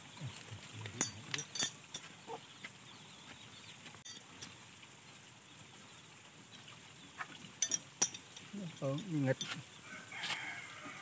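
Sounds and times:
wrenches clinking on metal bolts: 1.0 - 2.1, 7.6 - 9.6.

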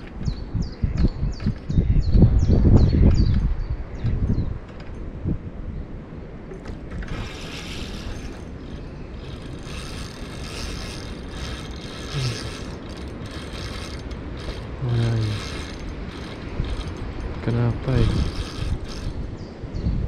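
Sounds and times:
fishing reel gears whirring: 6.7 - 19.3.

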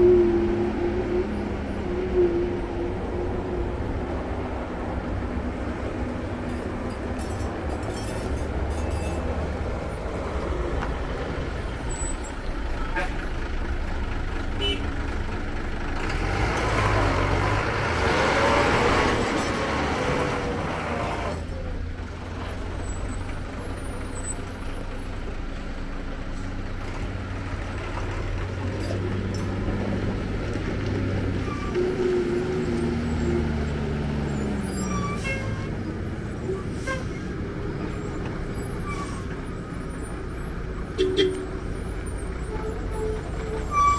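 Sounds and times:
lorry diesel engines running: 0.0 - 43.9.

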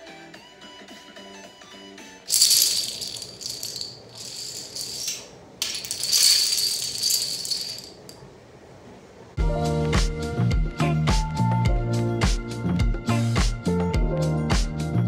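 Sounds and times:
dominoes clattering on tile floor: 2.3 - 8.2.

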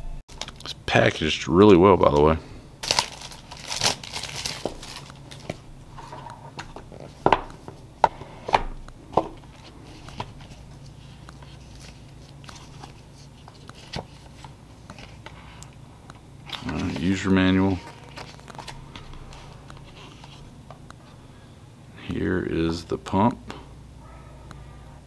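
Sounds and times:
plastic wrap crinkling: 2.8 - 5.6, 16.5 - 19.6.

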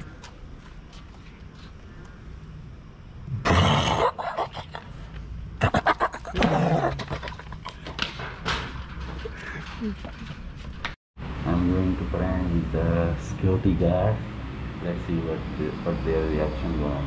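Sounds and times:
person roaring and growling: 3.3 - 4.8, 5.6 - 7.2.

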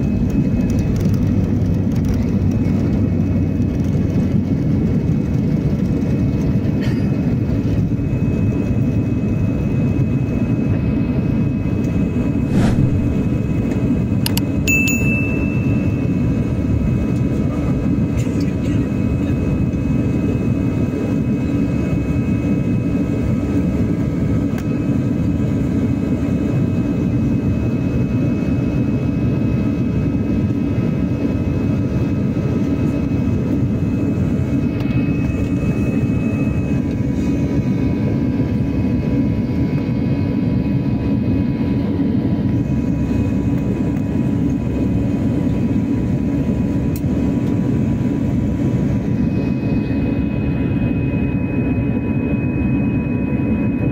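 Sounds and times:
jet engine rumbling rush: 8.9 - 18.2.

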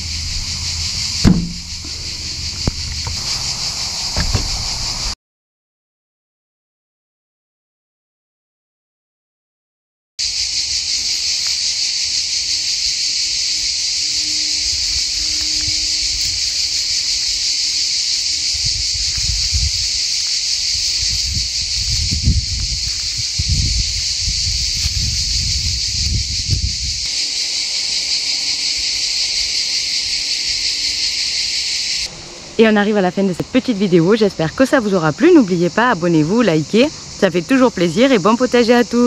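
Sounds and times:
low rumble: 0.0 - 3.1
insects chirring: 0.0 - 5.2, 10.2 - 39.0.

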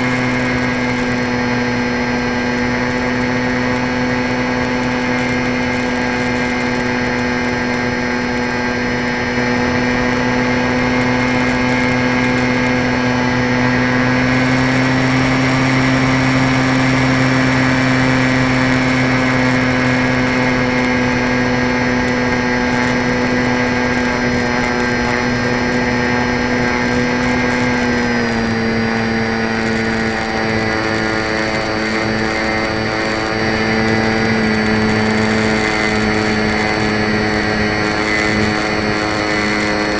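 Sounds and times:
model airplane motor whine: 0.0 - 39.9.

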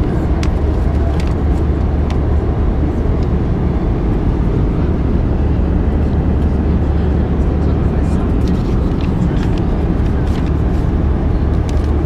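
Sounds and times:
airplane cabin rumble: 0.0 - 12.0
magazine pages rustling: 8.9 - 10.8.

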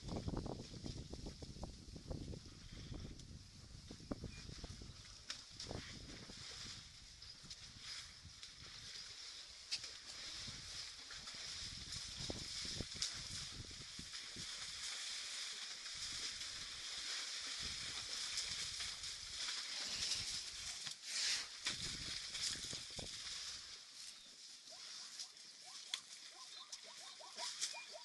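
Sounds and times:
elephants thumping and rustling: 7.5 - 23.7.

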